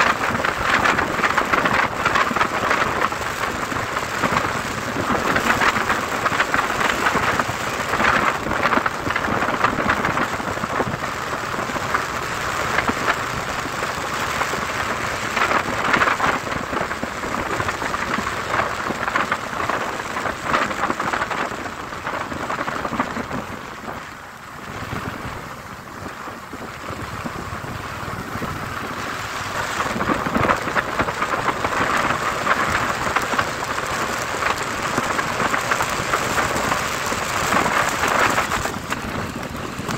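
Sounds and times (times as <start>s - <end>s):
wind and rain rushing: 0.0s - 39.9s.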